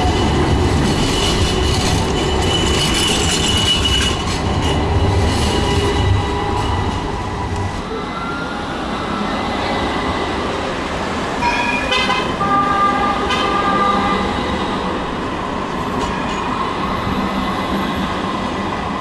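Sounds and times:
tram running on rails: 0:00.0 - 0:19.0
tram horn: 0:11.4 - 0:15.1.

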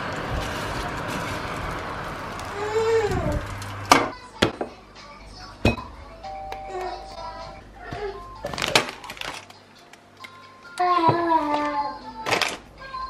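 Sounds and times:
background music with held tones: 0:04.2 - 0:13.0.

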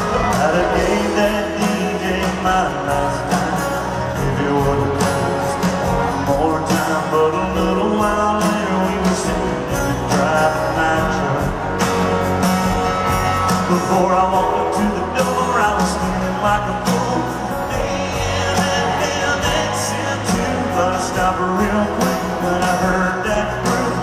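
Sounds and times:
acoustic guitar: 0:00.0 - 0:24.0
live country band playing: 0:00.0 - 0:24.0
steady drum beat: 0:00.0 - 0:24.0.

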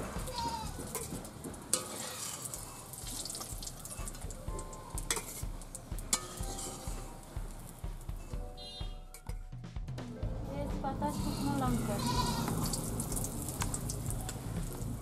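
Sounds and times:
metal spatula scraping a pan: 0:00.0 - 0:04.2, 0:04.9 - 0:07.3
oil sizzling in a pan: 0:00.0 - 0:08.3, 0:11.5 - 0:15.0.

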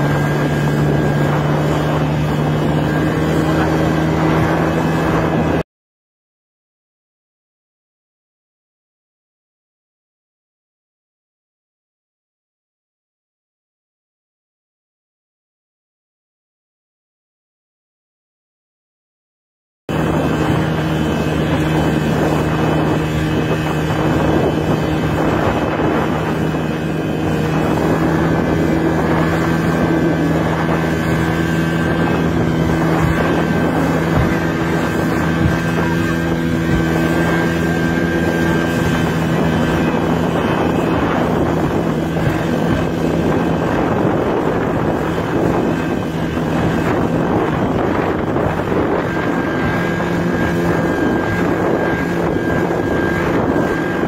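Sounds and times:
speedboat engine running: 0:00.0 - 0:05.6, 0:19.9 - 0:54.0
wind on microphone: 0:00.0 - 0:05.6, 0:19.9 - 0:54.0.

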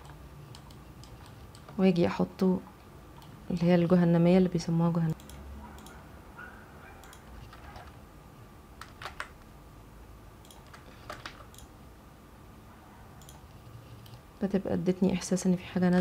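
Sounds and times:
computer keyboard and mouse clicks: 0:00.0 - 0:01.8, 0:05.1 - 0:06.0, 0:07.0 - 0:08.0, 0:08.8 - 0:09.5, 0:10.4 - 0:11.7, 0:13.2 - 0:14.2
faint steady hum: 0:00.0 - 0:16.0.

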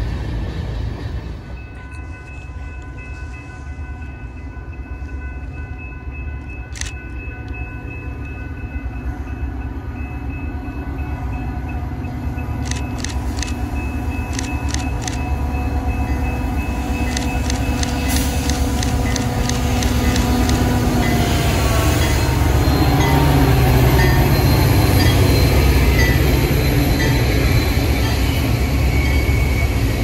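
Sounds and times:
diesel locomotive rumble: 0:00.0 - 0:05.7, 0:06.4 - 0:30.0
sharp clicks: 0:12.6 - 0:13.7, 0:14.3 - 0:15.3, 0:17.1 - 0:20.7.

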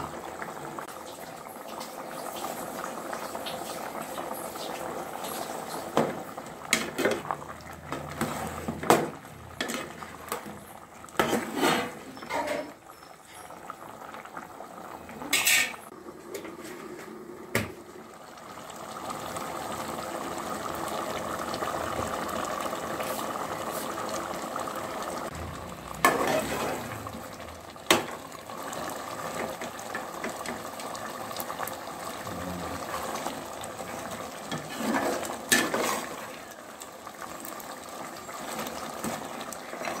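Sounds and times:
ladle stirring: 0:07.9 - 0:13.5, 0:33.9 - 0:36.4
thick curry bubbling in a pot: 0:17.8 - 0:40.0.

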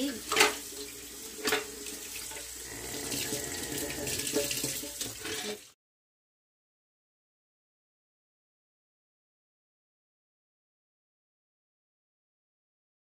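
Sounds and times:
faucet water splashing: 0:00.0 - 0:05.8.

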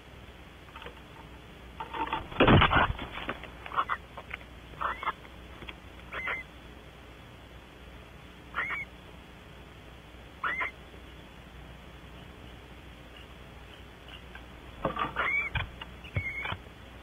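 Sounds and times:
barn owl calling: 0:03.7 - 0:04.1, 0:04.7 - 0:05.2, 0:06.0 - 0:06.5, 0:08.5 - 0:08.9, 0:10.4 - 0:10.8, 0:13.1 - 0:16.6.

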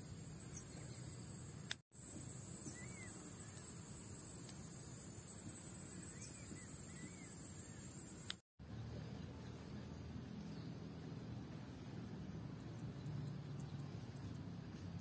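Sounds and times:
insects shrilling: 0:01.0 - 0:08.4
faint bird chirps: 0:02.5 - 0:04.5, 0:05.5 - 0:08.4.

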